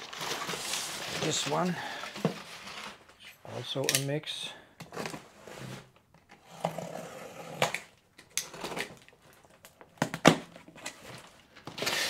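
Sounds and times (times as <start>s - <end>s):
packaging rustling: 0.0s - 3.4s
items knocking and clattering: 8.5s - 11.8s.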